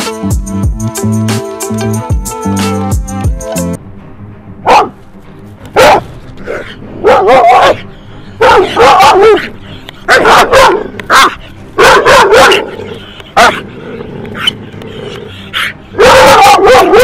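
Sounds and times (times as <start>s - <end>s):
dog barking: 4.6s - 5.0s, 5.8s - 7.8s, 8.4s - 13.8s, 15.5s - 17.0s.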